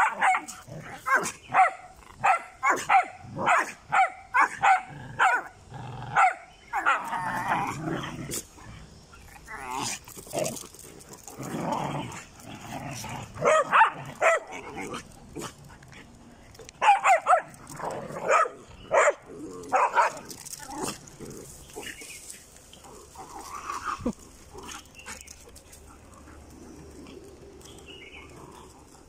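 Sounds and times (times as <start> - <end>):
dogs barking: 0.0 - 7.1, 13.4 - 15.5, 16.8 - 21.0.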